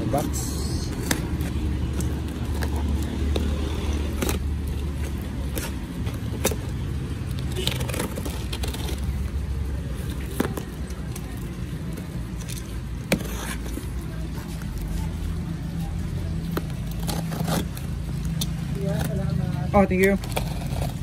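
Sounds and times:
box cutter slitting tape: 0:16.6 - 0:19.2.

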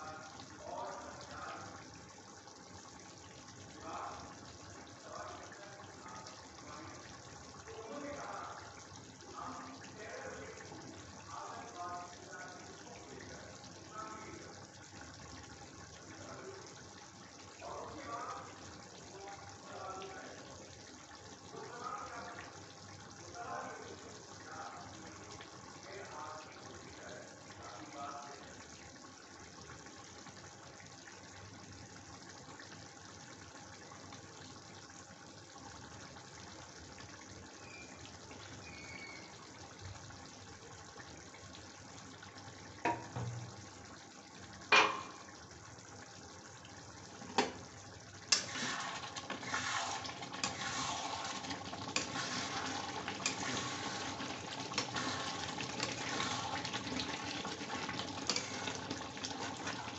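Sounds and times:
curry simmering bubbling hiss: 0:00.0 - 0:59.9
crackling bubbling: 0:24.0 - 0:59.9.

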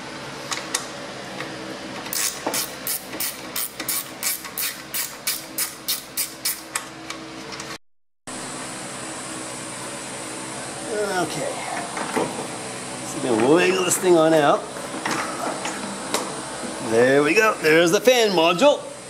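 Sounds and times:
ratchet wrench clicking: 0:02.1 - 0:06.8
steady hum: 0:08.3 - 0:19.0.

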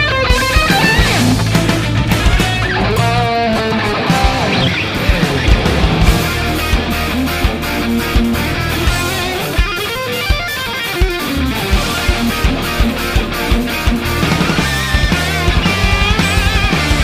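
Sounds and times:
electric guitar: 0:00.0 - 0:17.0
instrumental rock music: 0:00.0 - 0:17.0
drum beat: 0:00.1 - 0:17.0.

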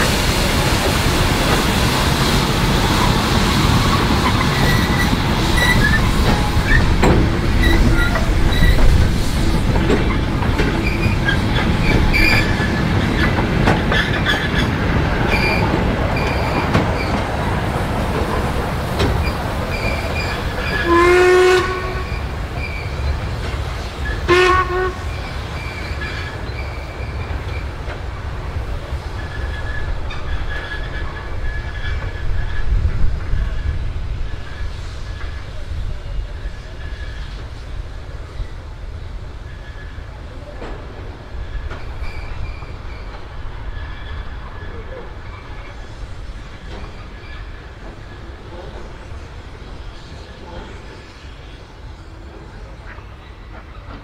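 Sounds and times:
steam train rumbling: 0:00.0 - 0:54.0
train whistle blast: 0:20.7 - 0:22.3, 0:24.2 - 0:25.2.

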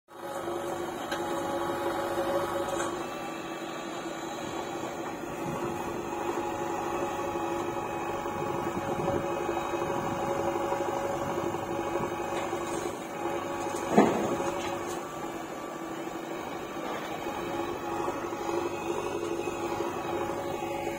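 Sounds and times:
diesel engine with hydraulic whine: 0:00.1 - 0:20.9.

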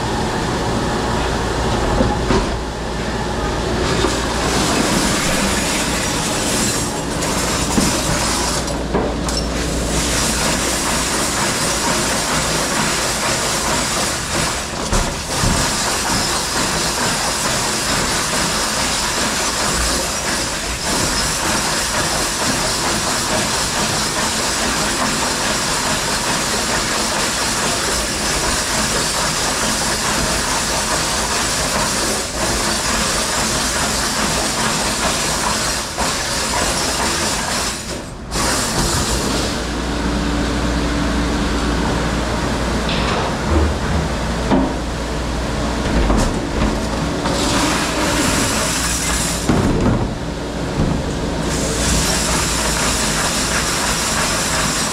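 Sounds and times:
low machine hum: 0:00.0 - 0:12.0, 0:38.0 - 0:52.8
dishwasher spraying water: 0:03.9 - 0:39.8, 0:46.0 - 0:50.0, 0:51.4 - 0:54.9.

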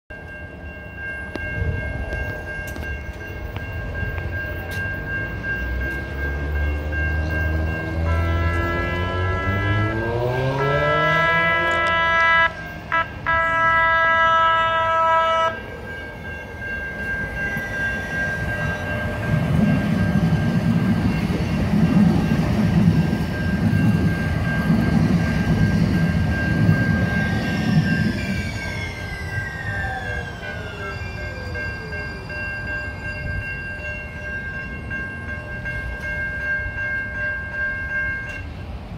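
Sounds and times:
level-crossing warning bell: 0:00.1 - 0:38.9
train wheels rumbling on rail: 0:00.1 - 0:38.9
train motor whine: 0:07.3 - 0:15.6, 0:16.6 - 0:33.4
train horn: 0:07.9 - 0:15.7.

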